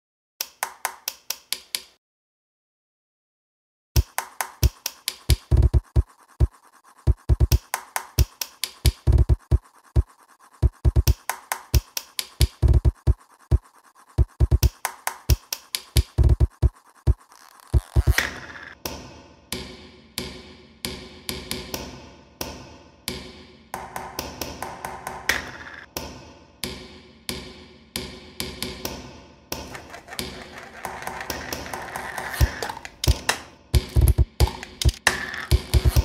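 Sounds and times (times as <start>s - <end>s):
spoon tapping and scraping plate: 29.6s - 33.4s.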